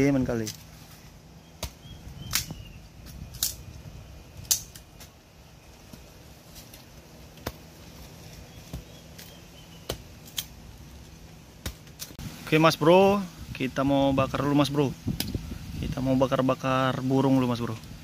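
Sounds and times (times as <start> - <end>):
machete chopping dry wood: 1.5 - 3.6, 4.4 - 5.2, 5.8 - 10.6, 11.6 - 12.2.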